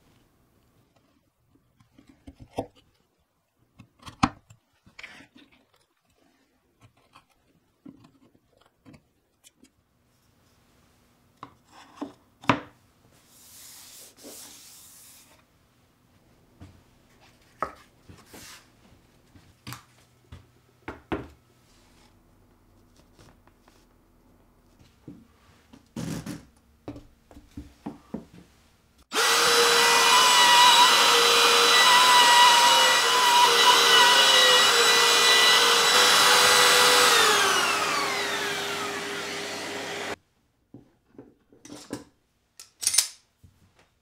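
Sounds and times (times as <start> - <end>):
hand rubbing over surface: 13.2 - 15.4
wood chisel cutting plywood: 29.1 - 40.2.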